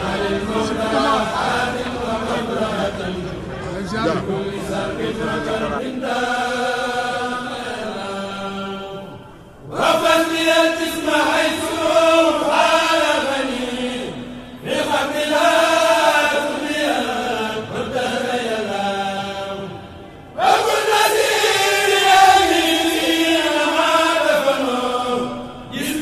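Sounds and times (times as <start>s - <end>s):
person chanting: 0.0s - 19.9s.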